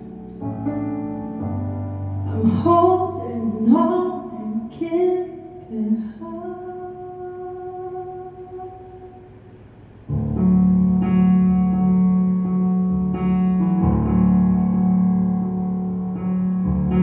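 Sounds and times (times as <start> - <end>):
keyboard chords: 0.0 - 4.3, 10.0 - 17.0
woman singing: 2.3 - 9.4.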